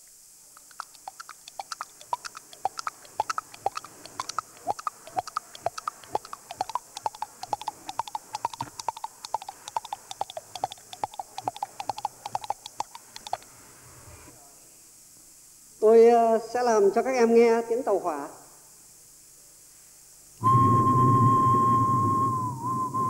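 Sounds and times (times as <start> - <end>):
tongue clicks imitating hoofbeats: 0.6 - 13.5.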